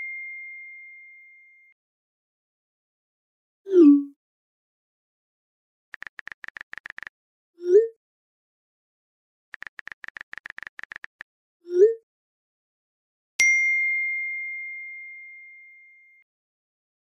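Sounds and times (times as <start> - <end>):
phone keyboard clicks: 6.0 - 7.1, 9.6 - 11.2.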